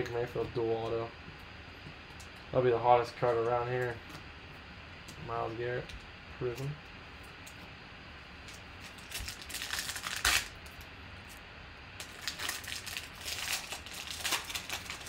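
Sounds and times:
foil wrapper crinkling: 8.5s - 11.4s, 12.0s - 15.0s
foil ripping: 8.8s - 10.9s, 12.0s - 15.0s.

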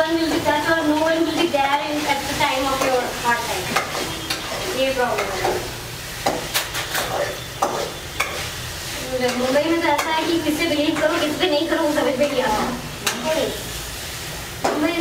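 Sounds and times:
frying sizzle: 0.0s - 15.0s
metal spatula scraping pan: 2.6s - 5.7s, 6.4s - 8.6s.

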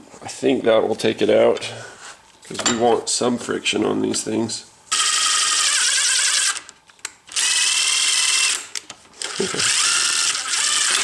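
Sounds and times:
cordless drill whining: 4.9s - 6.7s, 7.3s - 11.0s.

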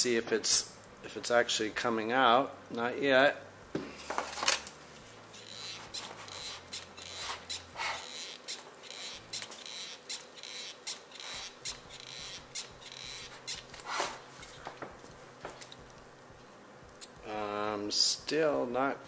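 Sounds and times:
grease gun squeaky clicks: 5.4s - 13.9s.

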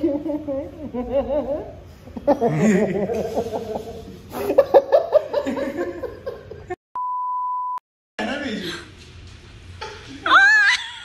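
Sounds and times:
people laughing and chuckling: 0.0s - 6.8s
steady electronic beep tone: 7.0s - 7.8s.

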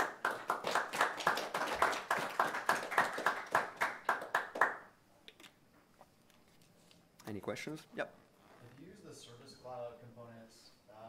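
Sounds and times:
small audience applauding: 0.0s - 5.0s.

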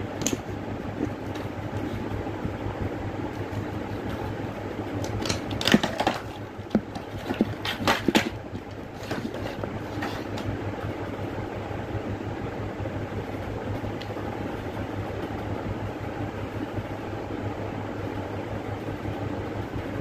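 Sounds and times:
steady low hum: 0.0s - 20.0s
plastic packaging clicks and crackles: 5.0s - 8.3s.

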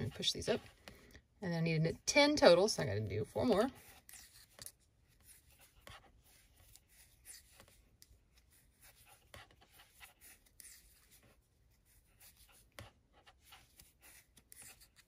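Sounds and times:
yarn rubbing: 0.0s - 0.8s.

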